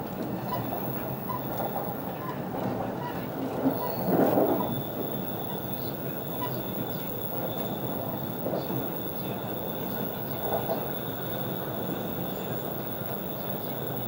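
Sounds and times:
train wheels rolling on track: 0.0 - 14.0.

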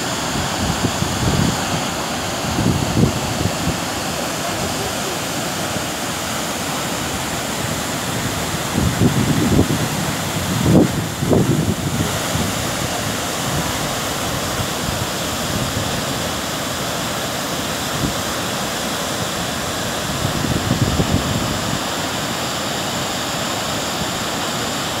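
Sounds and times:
waterfall rushing: 0.0 - 25.0
wind buffeting microphone: 0.1 - 4.4, 7.4 - 16.3, 19.8 - 21.9.

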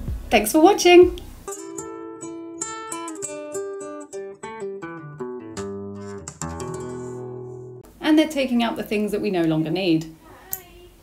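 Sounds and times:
acoustic guitar melody: 0.0 - 7.9.

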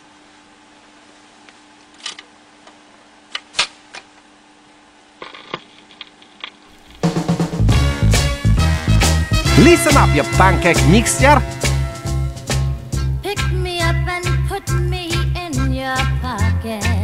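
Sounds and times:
loud soul music: 7.0 - 17.0.

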